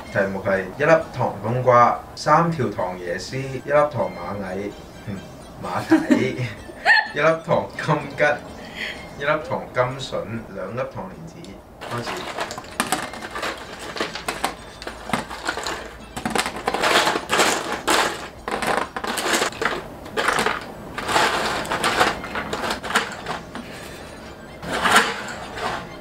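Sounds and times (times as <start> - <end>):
background music: 0.0 - 10.6, 11.6 - 26.0
chopsticks clicking and clattering: 11.8 - 23.8
pieces set on plastic lids: 11.8 - 23.8, 24.6 - 26.0.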